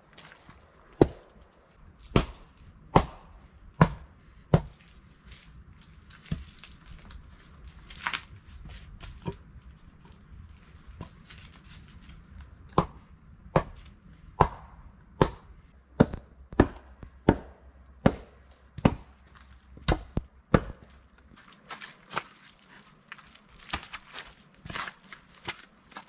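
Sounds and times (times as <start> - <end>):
log pounding wooden knocks: 1.0 - 1.2, 2.1 - 4.8, 12.7 - 13.8, 14.4 - 19.1, 19.8 - 20.9
footsteps: 19.2 - 26.0.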